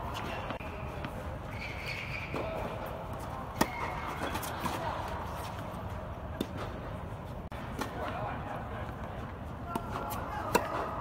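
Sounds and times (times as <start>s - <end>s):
racket striking tennis ball: 3.5s - 4.8s, 9.7s - 11.0s.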